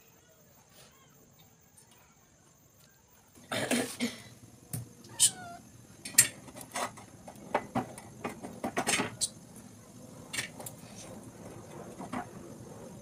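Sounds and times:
person coughing: 3.5 - 4.3.

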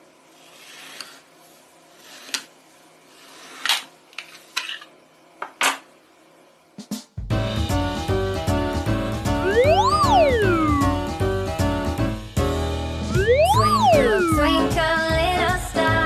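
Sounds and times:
children's music: 7.6 - 16.0.

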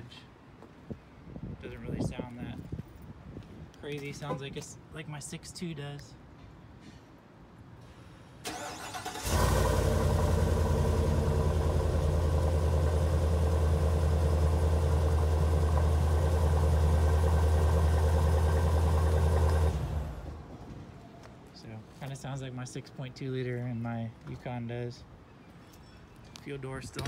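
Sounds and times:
engine cranking and idling: 8.4 - 20.6.

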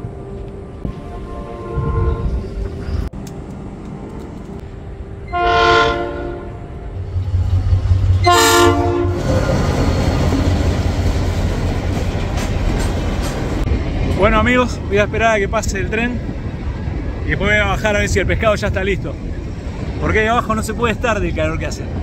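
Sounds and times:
locomotive engine rumble: 0.0 - 22.0
train horn blasts: 0.9 - 2.7, 5.2 - 7.0, 8.2 - 9.6
train wheels clattering on rails: 9.2 - 15.1.

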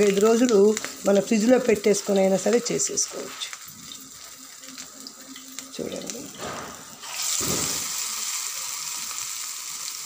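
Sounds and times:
batter sizzling in hot oil: 0.0 - 10.0.

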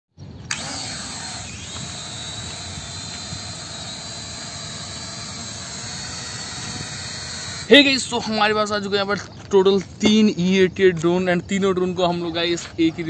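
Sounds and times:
drone propellers buzzing: 0.4 - 8.2.

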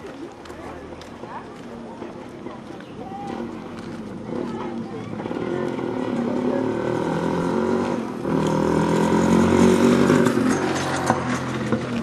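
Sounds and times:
motorcycle engine passing by: 4.2 - 12.0.

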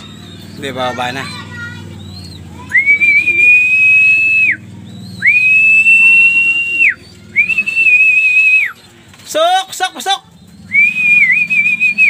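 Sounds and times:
high whistled notes: 2.2 - 8.8, 10.6 - 12.0.

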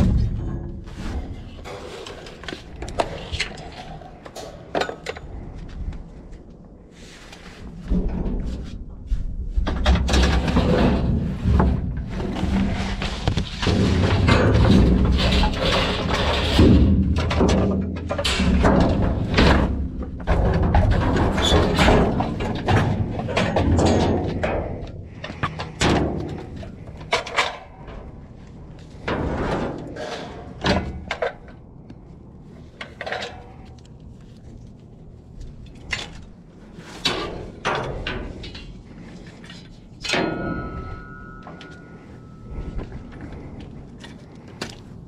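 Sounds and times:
items knocking and clattering: 0.0 - 5.5, 9.6 - 28.2.

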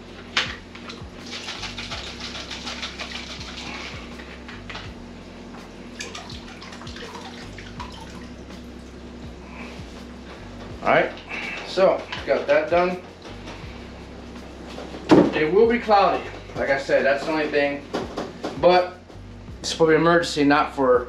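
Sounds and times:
liquid sloshing in bottle: 0.9 - 4.1, 6.0 - 8.7.

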